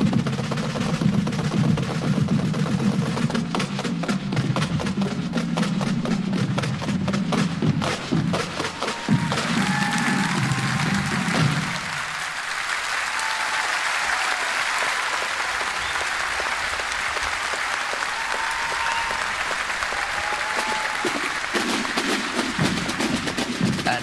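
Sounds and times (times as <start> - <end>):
drumming: 0.0 - 24.0
audience applauding: 7.9 - 24.0.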